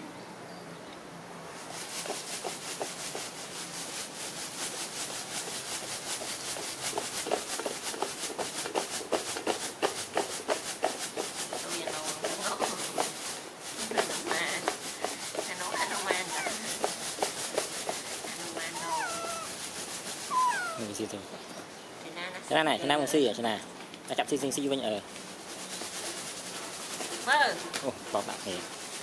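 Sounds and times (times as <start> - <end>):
monkeys chewing plant stalks: 12.2 - 21.0.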